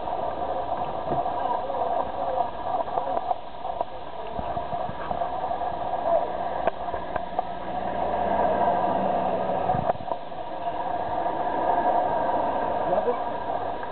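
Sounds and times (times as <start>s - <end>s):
city street traffic: 6.6s - 13.8s.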